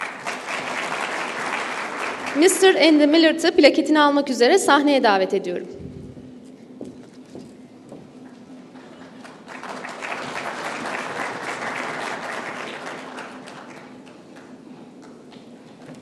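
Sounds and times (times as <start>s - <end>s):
audience applauding: 0.0s - 2.8s, 8.8s - 14.6s.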